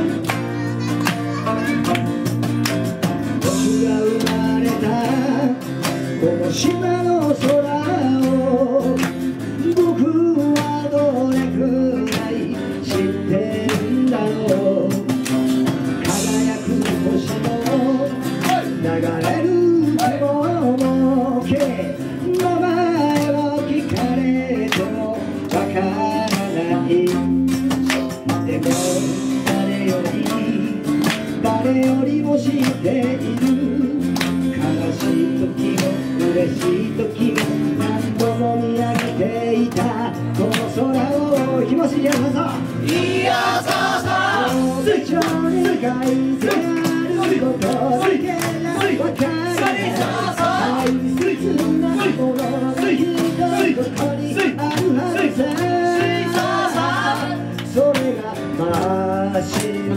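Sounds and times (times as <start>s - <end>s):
person singing: 0.0s - 2.4s, 3.3s - 15.1s, 16.0s - 27.4s, 28.4s - 42.3s, 42.9s - 59.9s
plucked lute: 0.0s - 7.7s
frame drum beat: 0.0s - 59.9s
strummed acoustic guitars: 0.0s - 59.9s
ukulele: 0.0s - 59.9s.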